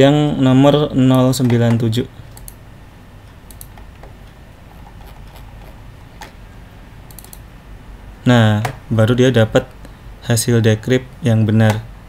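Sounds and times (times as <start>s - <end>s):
low steady hum: 0.0s - 12.0s
computer keyboard clicks: 2.4s - 2.6s, 3.5s - 3.9s, 7.1s - 7.4s.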